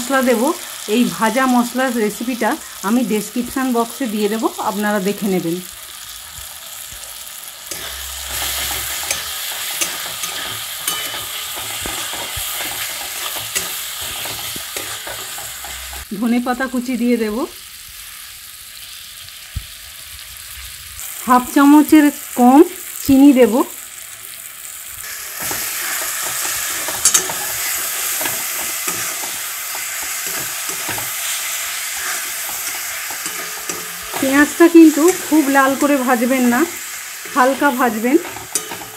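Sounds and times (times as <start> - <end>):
vegetables sizzling in oil: 0.0 - 38.9
metal spatula scraping pan: 7.6 - 16.1, 25.0 - 38.9.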